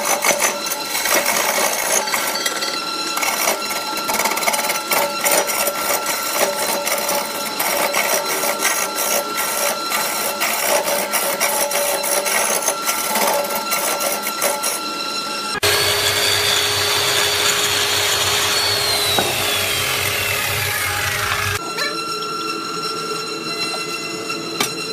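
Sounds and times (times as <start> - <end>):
turning tool scraping wood: 0.0 - 14.9, 15.6 - 21.6
wood lathe whine: 0.0 - 24.9
machine hum with high whine: 14.8 - 24.9.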